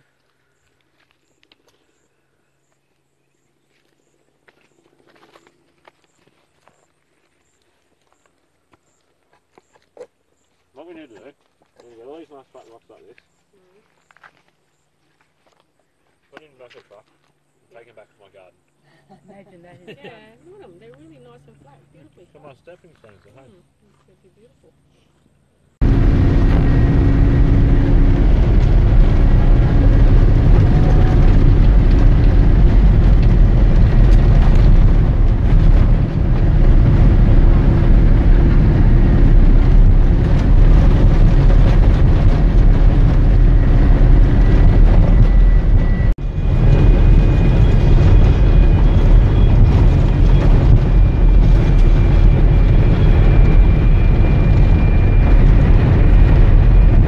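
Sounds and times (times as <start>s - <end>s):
vehicle engine drone: 25.8s - 57.0s
wind buffeting microphone: 25.8s - 57.0s
tyre rumble on gravel: 28.1s - 53.4s.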